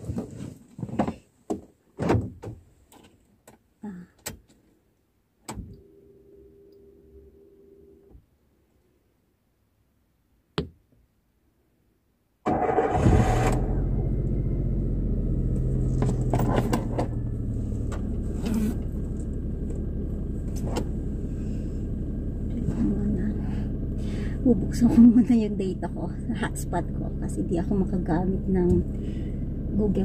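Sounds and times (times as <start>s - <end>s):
car engine starting and idling: 12.4s - 30.0s.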